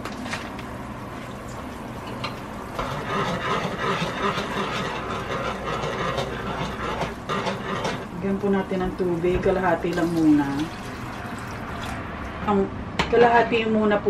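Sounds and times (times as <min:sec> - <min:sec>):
sauce sizzling and bubbling: 0:00.6 - 0:12.4
spoon stirring: 0:02.1 - 0:12.0.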